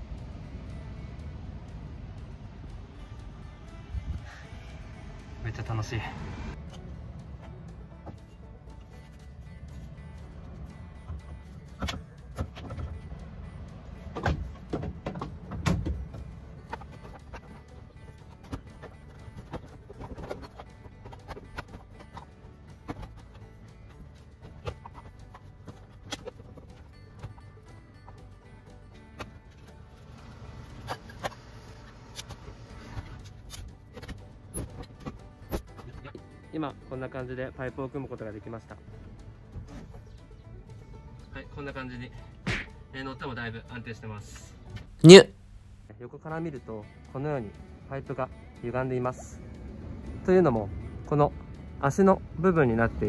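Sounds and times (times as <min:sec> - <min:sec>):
low steady rumble: 0:00.0 - 0:20.0
pipes and joints knocking together: 0:14.0 - 0:28.3.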